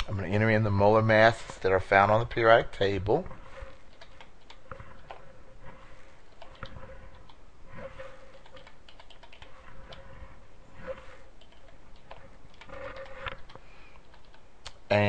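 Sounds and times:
computer keyboard key clicks: 8.4 - 9.5.

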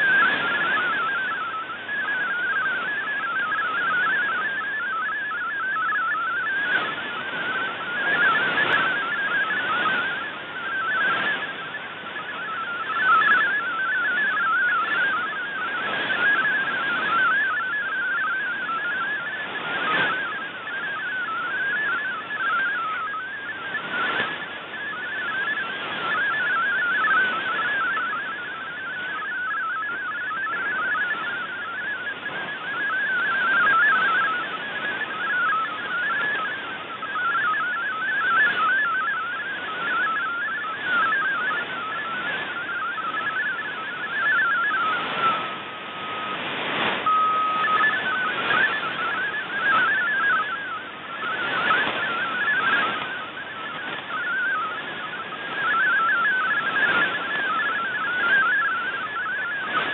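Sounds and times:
radio receiver hiss: 0.0 - 59.9
static crackles: 0.0 - 59.9
warbling digital radio tones: 0.0 - 59.9.

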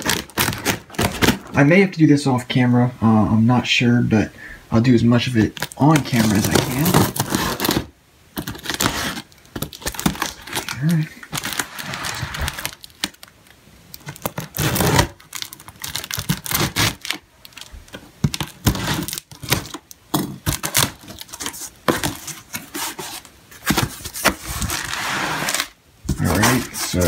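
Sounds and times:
cardboard scraping: 0.0 - 1.6, 5.4 - 13.2, 14.2 - 17.2, 18.3 - 27.0
plastic crinkling: 0.0 - 1.6, 5.2 - 27.0.

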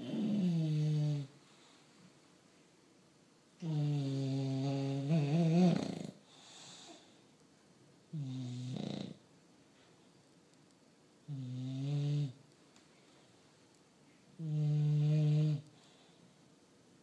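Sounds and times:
dog snoring: 0.0 - 1.3, 3.6 - 7.0, 8.1 - 9.2, 11.2 - 12.4, 14.4 - 15.7.

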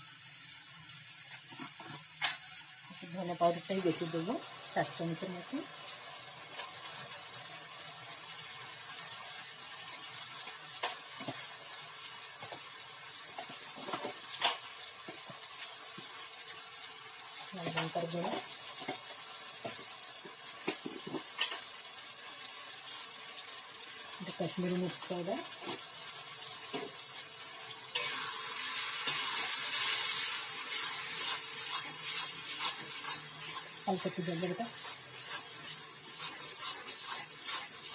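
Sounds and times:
masala sizzling in oil: 0.0 - 37.9
metal spatula scraping pan: 29.0 - 37.9.

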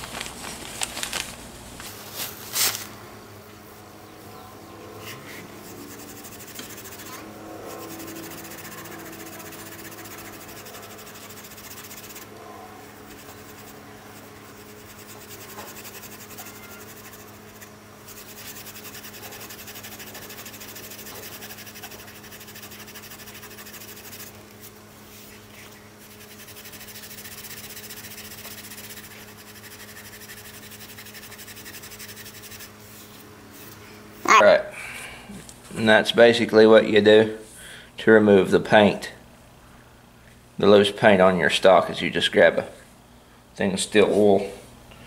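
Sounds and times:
steady low hum: 0.0 - 45.0
steel wool scrubbing wood: 5.1 - 24.4, 26.0 - 33.2.

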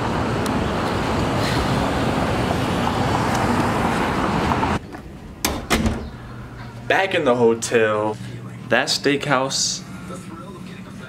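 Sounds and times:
city street traffic rumble: 0.0 - 5.4.

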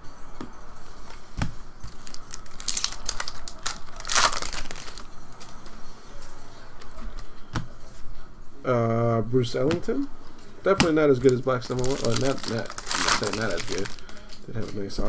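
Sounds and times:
foil wrapper tearing and crinkling: 1.8 - 5.5, 11.2 - 14.4.

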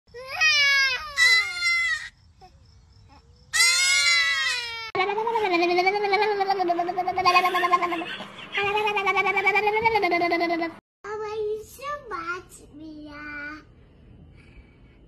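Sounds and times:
toddler crying: 0.2 - 2.1.

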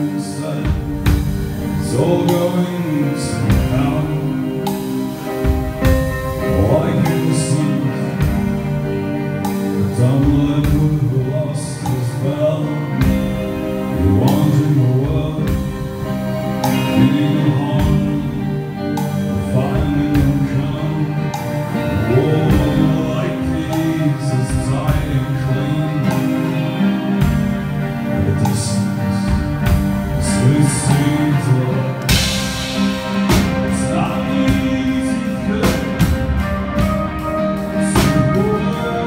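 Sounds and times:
live rock band playing: 0.0 - 39.0
man singing: 0.0 - 39.0.

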